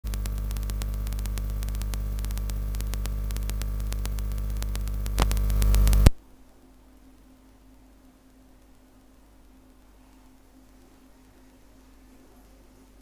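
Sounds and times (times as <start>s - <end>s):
electrical pop: 0.0s - 6.2s
crackling buzz of clicks: 0.0s - 11.6s
electrical mains hum: 0.0s - 13.0s.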